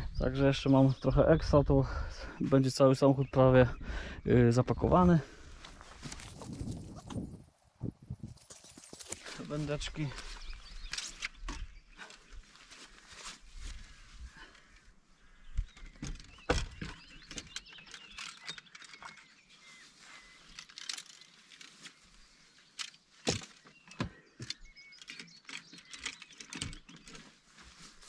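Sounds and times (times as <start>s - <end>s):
rustling: 5.6s - 14.8s, 26.0s - 28.0s
fishing gear clattering: 16.1s - 19.3s, 20.4s - 22.0s, 24.4s - 27.4s.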